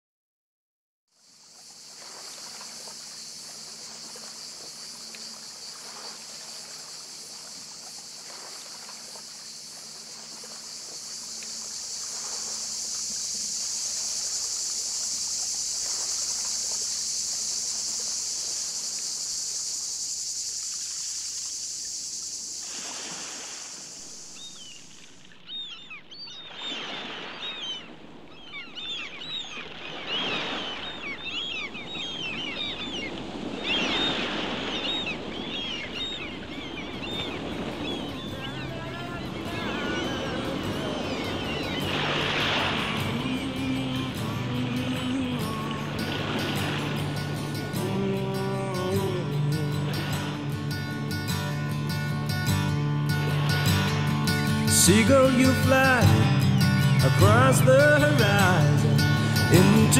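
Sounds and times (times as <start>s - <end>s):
cicadas chorus: 1.1s - 59.9s
gulls calling: 1.4s - 59.9s
washing water: 1.6s - 25.2s.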